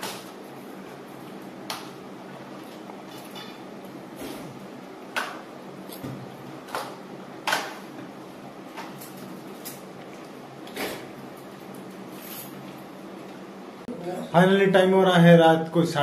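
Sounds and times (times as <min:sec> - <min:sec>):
electric fan humming: 0:00.0 - 0:16.0.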